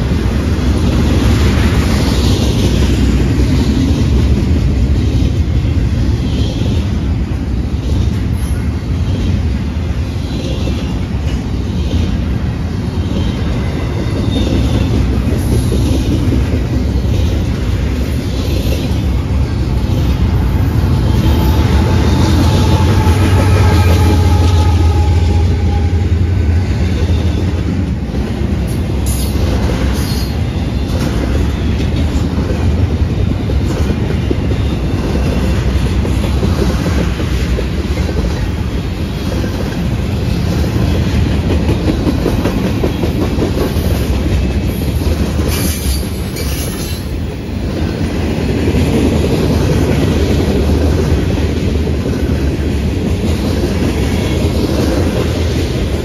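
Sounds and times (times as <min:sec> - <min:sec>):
train wheels clattering on rails: 0:00.0 - 0:56.0
locomotive engine rumble: 0:16.1 - 0:29.8
high wheel squeals: 0:20.0 - 0:26.4.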